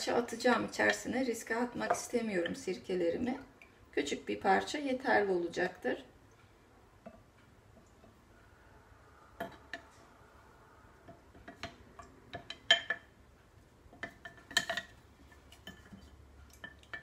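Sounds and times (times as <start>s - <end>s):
chopsticks tapping glass jar: 11.1s - 13.2s, 14.0s - 17.0s.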